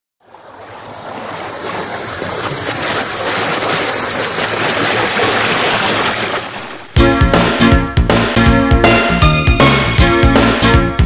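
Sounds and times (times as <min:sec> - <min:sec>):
river water rushing over weir: 0:00.2 - 0:07.0.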